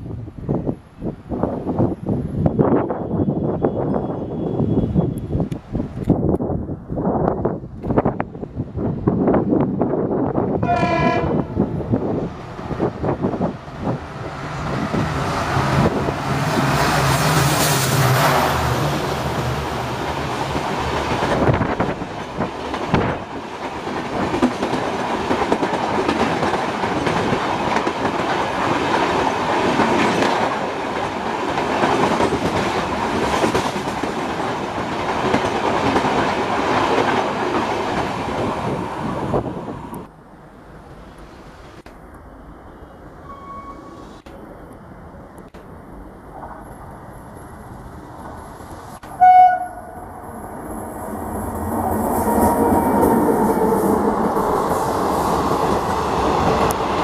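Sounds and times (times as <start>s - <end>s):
distant train rumble: 0.0s - 57.0s.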